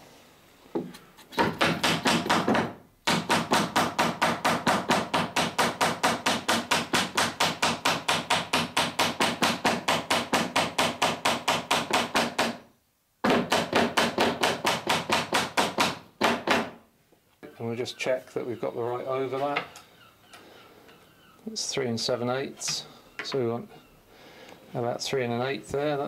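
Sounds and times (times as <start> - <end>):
hammer striking nail: 1.4 - 16.8.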